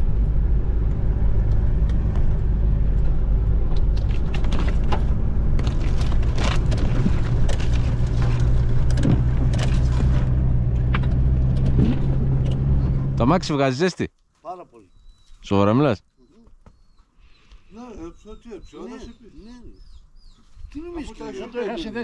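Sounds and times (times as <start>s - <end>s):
car engine drone from cabin: 0.0s - 5.8s.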